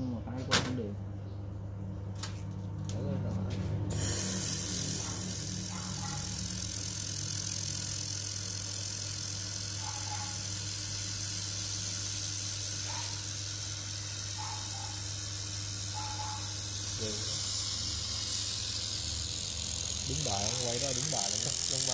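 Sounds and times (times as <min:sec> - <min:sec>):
shielding gas hissing: 0:03.9 - 0:06.6, 0:09.2 - 0:21.9.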